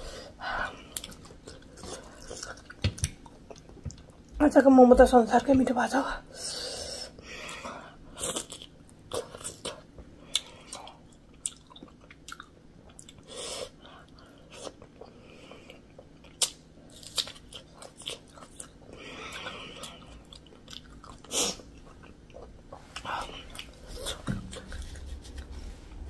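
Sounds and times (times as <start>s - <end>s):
chewing with mouth clicks: 0.8s - 4.3s, 8.2s - 13.3s, 14.0s - 25.5s.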